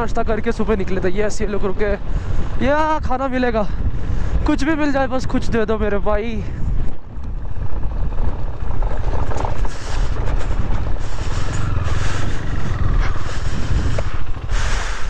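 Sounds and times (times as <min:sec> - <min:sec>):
motorcycle engine at low speed: 0:00.0 - 0:15.0
motorcycle riding off: 0:07.4 - 0:15.0.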